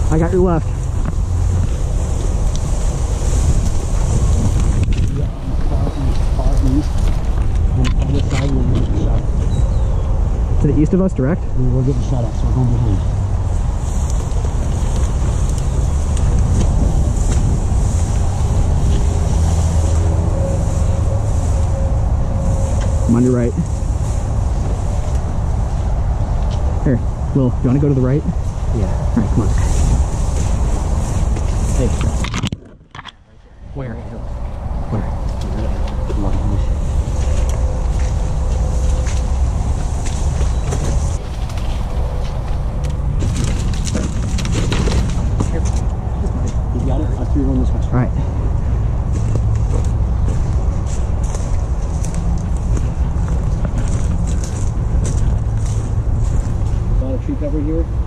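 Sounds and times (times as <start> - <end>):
wind rumbling on microphone: 0.0 - 58.0
tall grass swishing: 0.7 - 7.3, 13.4 - 26.0, 28.4 - 32.2
footsteps through brush: 12.9 - 26.8, 28.4 - 32.3, 34.3 - 46.8, 48.4 - 57.2.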